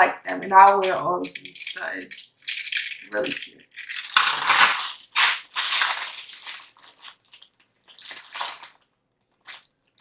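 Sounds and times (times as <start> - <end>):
packaging rustling and crinkling: 2.4 - 10.0.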